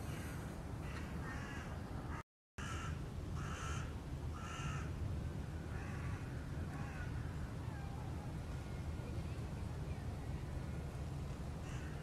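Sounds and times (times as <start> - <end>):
crows cawing: 0.0 - 1.7, 2.6 - 4.9, 5.7 - 7.3, 11.6 - 12.0.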